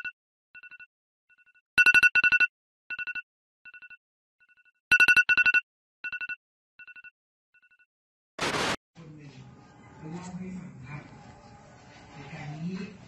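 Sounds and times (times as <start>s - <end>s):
electronic telephone ringtone trill: 0.0s - 0.9s.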